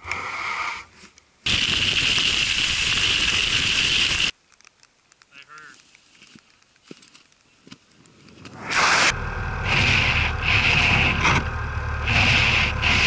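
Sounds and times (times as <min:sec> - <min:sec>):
snow shovel scraping snow: 0:08.5 - 0:13.0.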